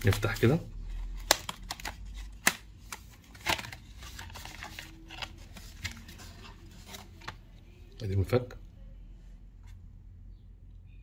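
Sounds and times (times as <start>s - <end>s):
plastic blister pack crinkling: 0.0s - 7.4s.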